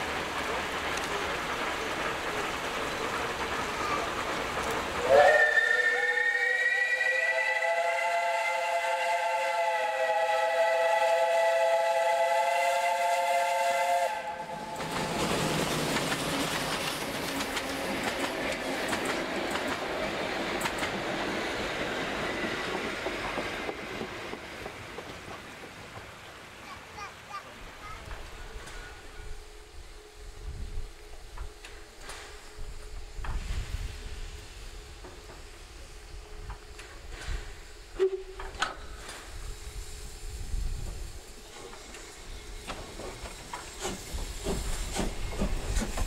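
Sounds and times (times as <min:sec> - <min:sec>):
train carriages rumbling: 0:00.0 - 0:46.0
steam whistle blast: 0:05.0 - 0:15.2, 0:37.9 - 0:38.6.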